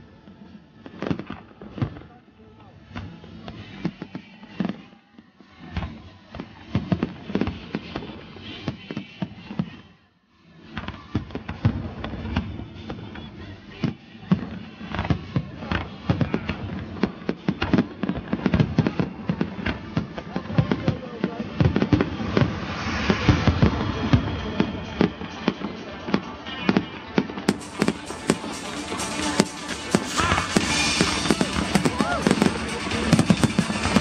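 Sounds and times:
fireworks bangs: 16.2 - 34.0
fireworks crackling: 16.2 - 34.0.

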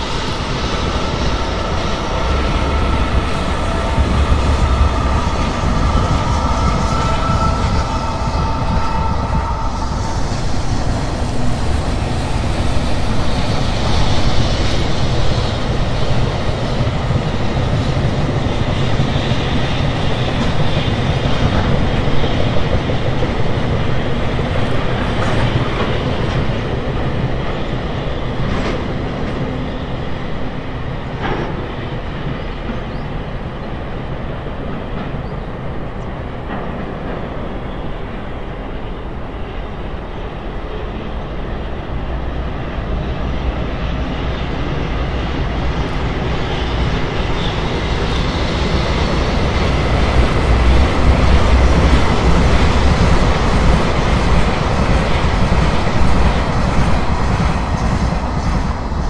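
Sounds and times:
electric locomotive: 0.0 - 59.0
freight train rumble on bridge: 0.0 - 59.0.

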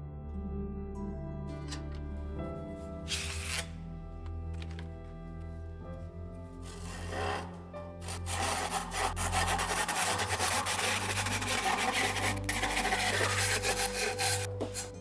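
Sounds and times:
hand saw cutting wood: 3.1 - 3.7, 6.7 - 14.9.

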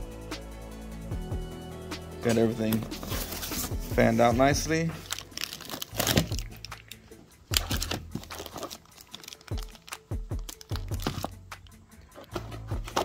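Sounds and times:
background music: 0.0 - 13.0
plastic wrapping crinkling: 4.9 - 11.4.

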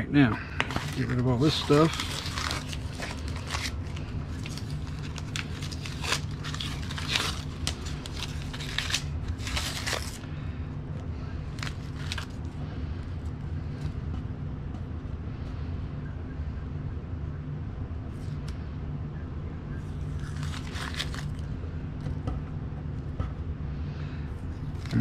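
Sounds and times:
steady low hum: 0.0 - 25.0
vinyl scraps crinkling: 0.6 - 10.3, 11.5 - 12.4, 20.2 - 21.5.

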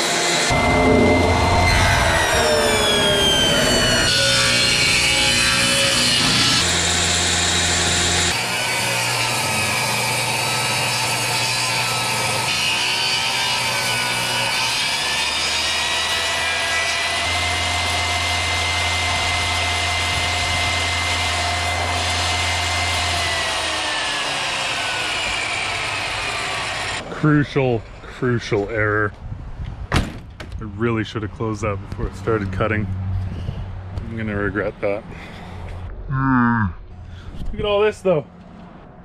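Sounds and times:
table saw ripping wood: 0.0 - 27.0.

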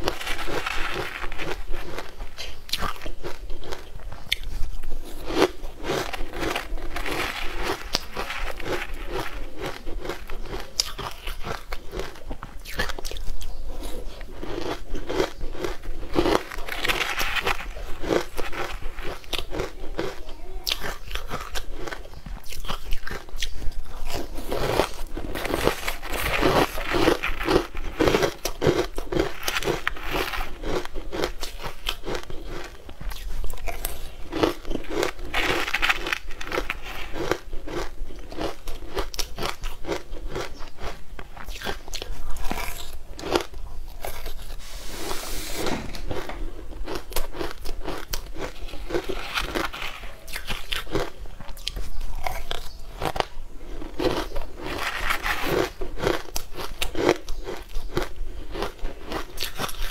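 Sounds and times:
chewing and crunching food: 0.0 - 59.9.

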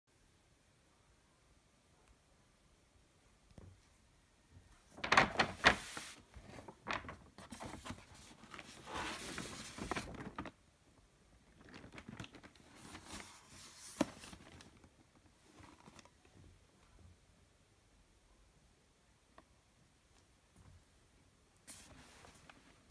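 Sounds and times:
paper bag rustling: 4.9 - 10.6, 11.5 - 16.1.

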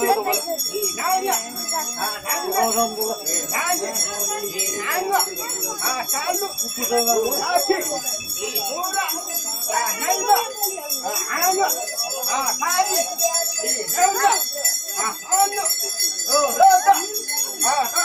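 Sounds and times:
many people talking: 0.0 - 18.0
small bells jingling: 0.0 - 18.0.

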